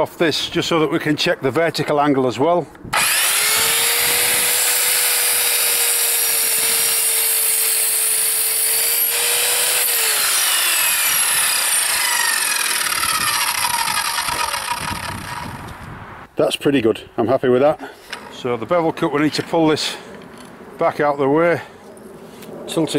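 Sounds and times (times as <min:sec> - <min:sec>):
mitre saw cutting timber: 0:02.9 - 0:15.8
saw blade winding down: 0:03.0 - 0:15.7.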